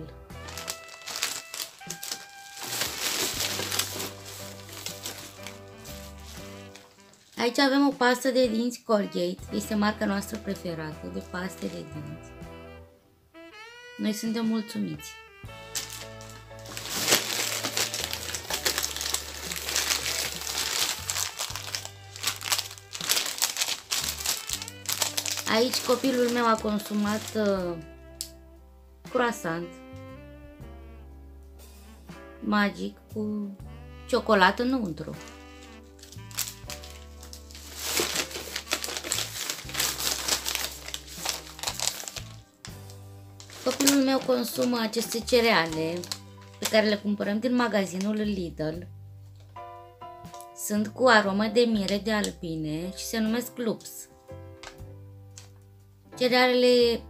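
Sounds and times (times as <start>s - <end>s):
plastic packaging crinkling: 0.0s - 7.8s, 15.5s - 27.7s, 35.2s - 47.1s, 47.8s - 48.2s.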